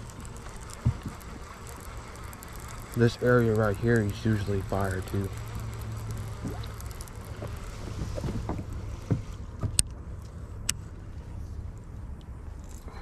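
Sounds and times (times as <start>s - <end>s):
reel clicks: 0.0s - 11.0s
steady low hum: 0.0s - 13.0s
soft handling knocks: 7.4s - 9.9s.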